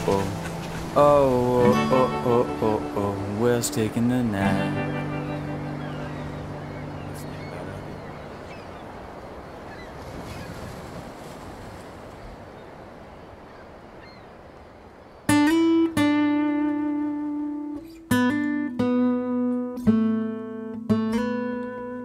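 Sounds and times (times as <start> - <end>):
acoustic guitar picked notes: 0.0 - 8.4, 15.3 - 22.0
beach surf: 0.0 - 22.0.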